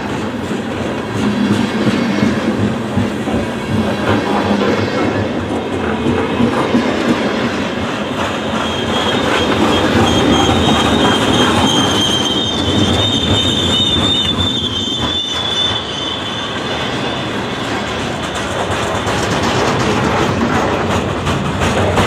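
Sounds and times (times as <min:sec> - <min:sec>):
freight train wheels rumbling on rails: 0:00.0 - 0:22.0
high-pitched wheel squeal: 0:08.3 - 0:17.9.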